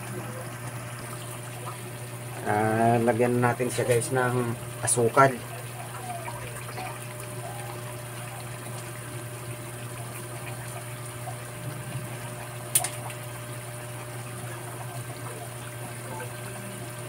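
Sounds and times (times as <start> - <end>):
sharp click: 12.7 - 13.0.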